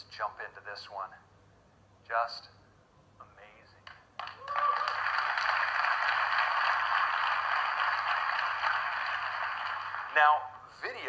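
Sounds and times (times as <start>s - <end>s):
audience applauding: 4.2s - 10.6s.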